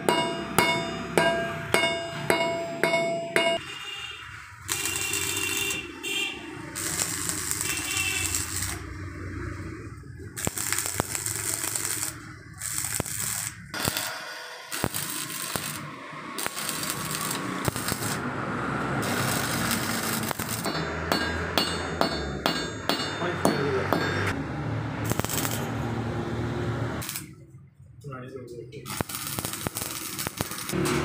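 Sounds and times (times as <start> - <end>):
arc welder crackling and hissing: 4.6 - 9.5, 10.1 - 18.2, 19.0 - 20.7, 25.0 - 25.8, 27.0 - 27.3, 28.9 - 31.0.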